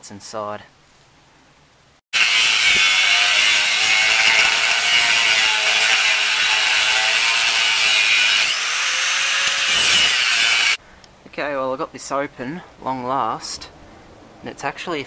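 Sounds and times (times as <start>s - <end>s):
angle grinder cutting metal: 2.2s - 10.8s.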